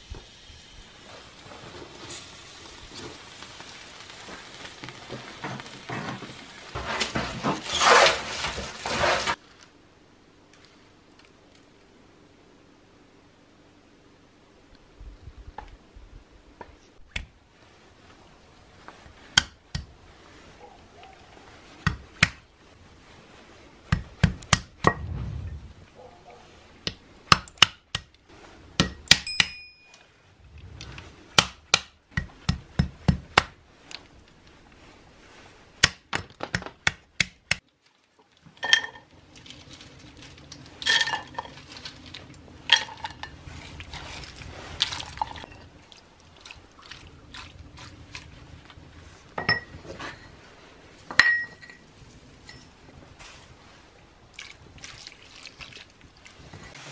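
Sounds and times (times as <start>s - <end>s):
nuts clinking into clay bowl: 38.6s - 43.4s.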